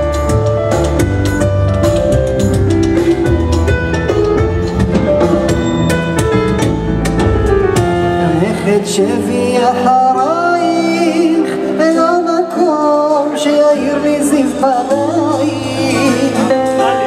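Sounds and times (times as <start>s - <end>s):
double bass line: 0.0s - 10.0s
keyboard chords: 0.0s - 17.0s
person singing: 8.0s - 17.0s.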